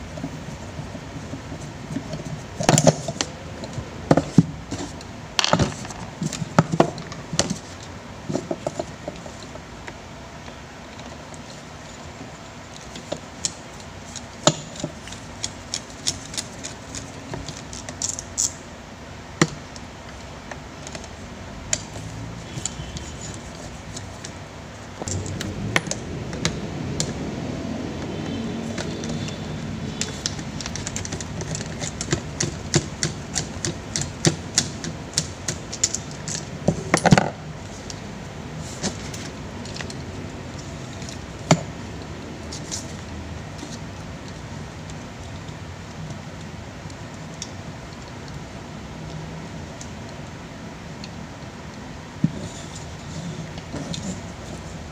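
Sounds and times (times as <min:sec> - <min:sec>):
low rumble: 0:25.1 - 0:28.0.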